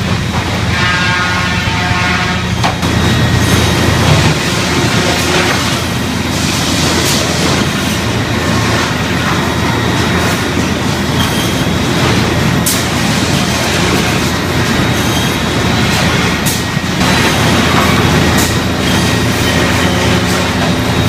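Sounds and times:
sawmill machinery din: 0:00.0 - 0:21.0.

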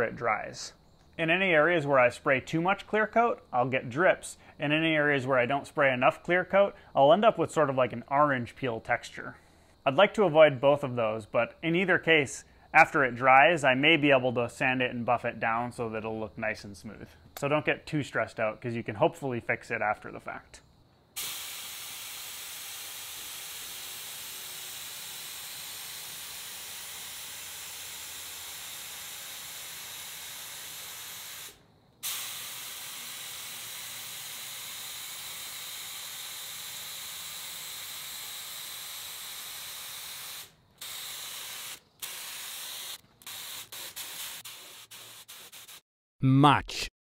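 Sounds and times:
spray gun hissing: 0:21.2 - 0:45.8.

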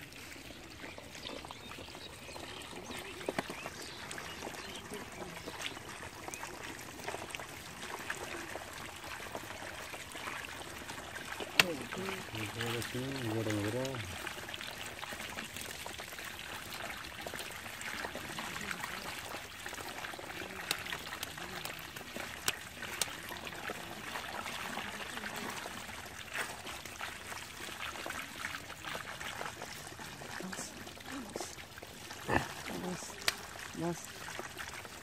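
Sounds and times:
shallow water trickling: 0:00.0 - 0:35.0
fish flapping and splashing: 0:17.0 - 0:31.8.

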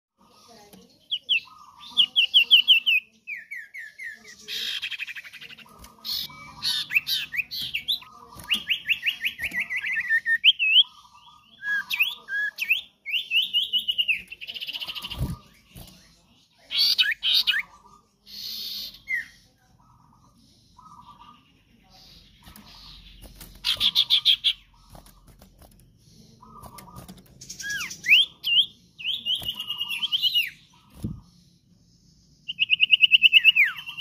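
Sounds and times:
bird whistling song: 0:01.1 - 0:15.7, 0:26.5 - 0:31.2, 0:32.4 - 0:34.0
bird harsh chattering: 0:01.1 - 0:16.0, 0:16.6 - 0:31.2.

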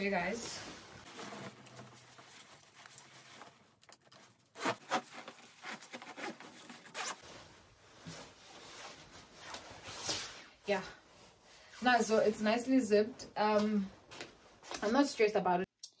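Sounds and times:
jacket zipper being zipped: 0:04.6 - 0:07.3.

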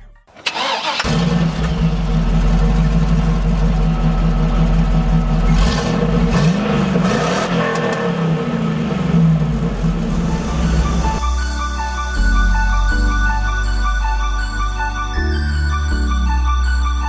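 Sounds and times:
vehicle engine starting and idling: 0:00.3 - 0:11.6
engine revving: 0:00.5 - 0:11.2.

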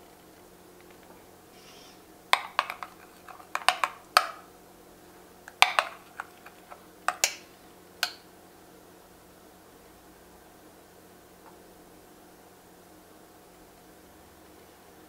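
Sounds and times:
metal spoon clinking on glass bowl: 0:02.4 - 0:04.4, 0:05.6 - 0:07.4, 0:08.0 - 0:08.2.

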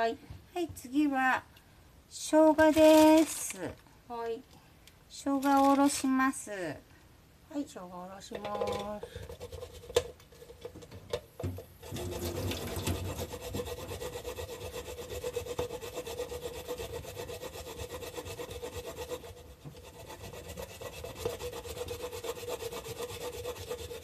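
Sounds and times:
ginger grated on a grater: 0:11.8 - 0:24.0.

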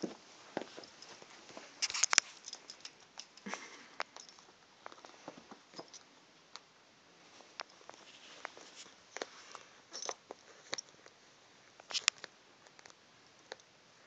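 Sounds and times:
cat scuffling with toy on carpet: 0:07.2 - 0:09.6.

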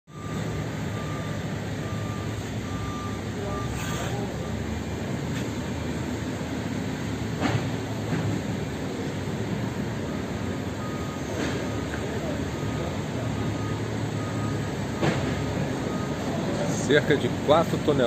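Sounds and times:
high beeping: 0:00.1 - 0:05.0
low mechanical rumble: 0:00.1 - 0:16.8.

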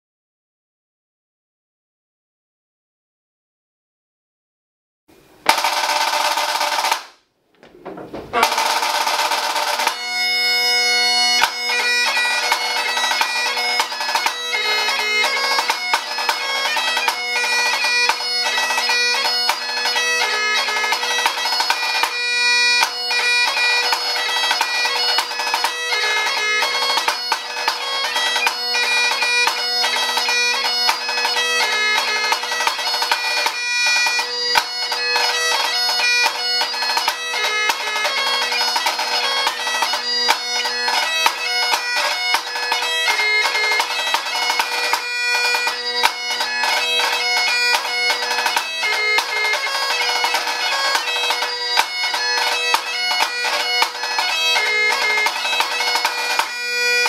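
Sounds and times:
snare drum beating: 0:05.5 - 0:10.0
bagpipe playing over drones: 0:08.4 - 0:57.0.

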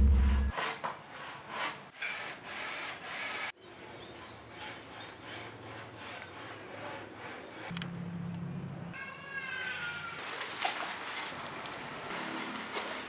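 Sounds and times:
rubbing or scraping strokes: 0:00.0 - 0:03.6, 0:04.5 - 0:07.8.

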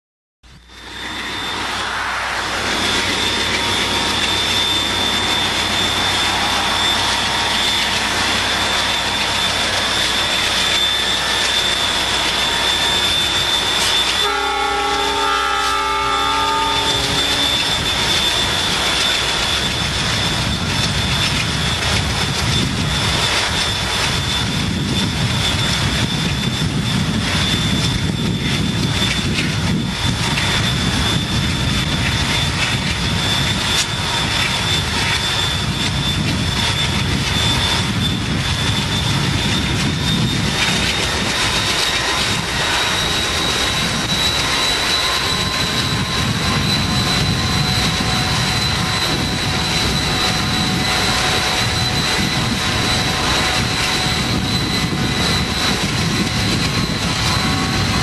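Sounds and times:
road noise: 0:00.4 - 0:23.0
diesel locomotives running: 0:00.4 - 0:58.0
rushing wind: 0:00.4 - 0:58.0
faint high whine: 0:00.5 - 0:58.0.

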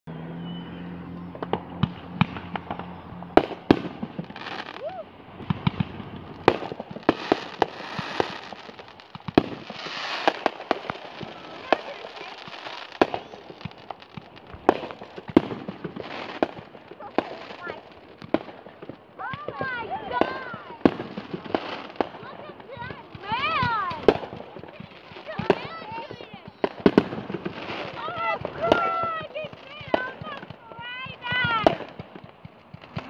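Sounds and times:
fireworks bangs: 0:00.2 - 0:33.0
fireworks hiss: 0:01.4 - 0:33.0.

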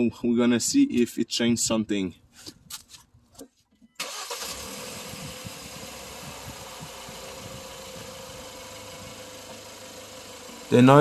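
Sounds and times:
car engine running: 0:04.1 - 0:11.0.

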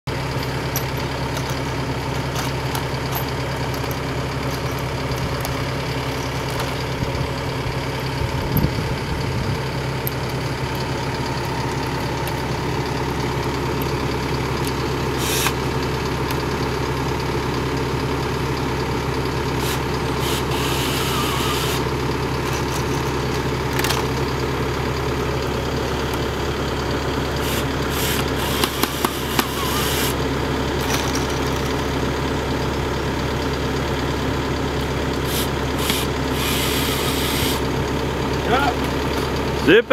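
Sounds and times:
engine idling: 0:00.0 - 0:39.9.

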